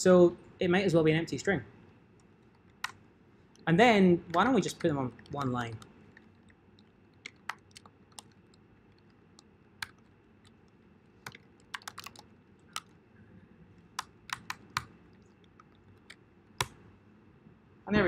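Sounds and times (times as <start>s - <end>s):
typing on computer keyboard: 2.2s - 3.7s, 4.3s - 13.0s, 13.8s - 16.8s.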